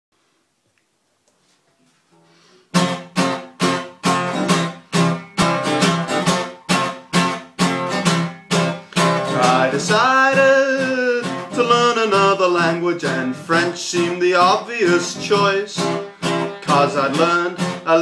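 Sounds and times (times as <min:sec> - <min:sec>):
acoustic guitar strumming: 0:02.2 - 0:18.0
man singing: 0:09.2 - 0:18.0.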